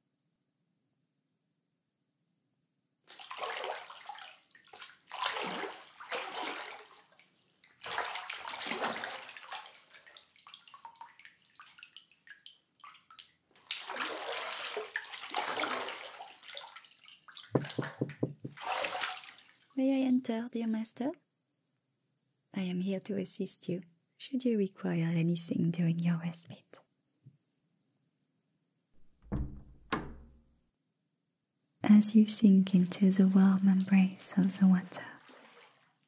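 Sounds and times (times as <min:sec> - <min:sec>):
water sloshing in bathtub: 0:03.1 - 0:19.8, 0:32.6 - 0:36.0
quick knocks: 0:17.6 - 0:18.6, 0:29.0 - 0:30.4.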